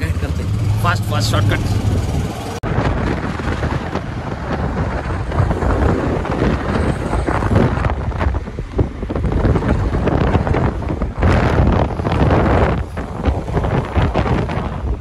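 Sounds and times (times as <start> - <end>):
road and traffic noise: 0.0 - 15.0
wind buffeting microphone: 0.0 - 15.0.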